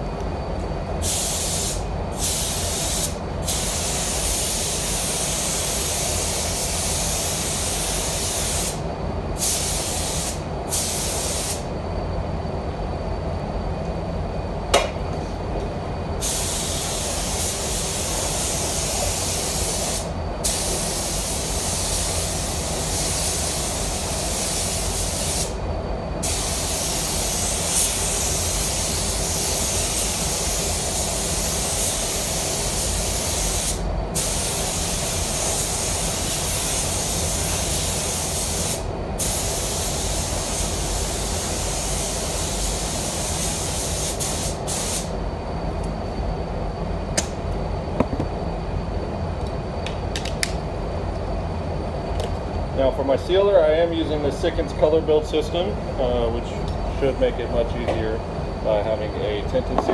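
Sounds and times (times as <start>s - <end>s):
spray gun hissing: 1.0s - 8.8s, 9.4s - 11.6s, 16.2s - 25.6s, 26.2s - 45.1s.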